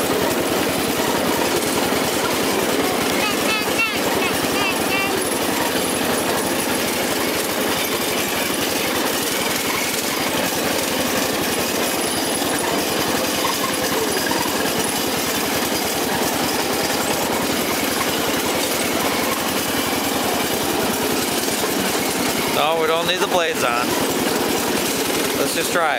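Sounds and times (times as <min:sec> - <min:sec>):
riding lawn mower engine: 0:00.0 - 0:25.9.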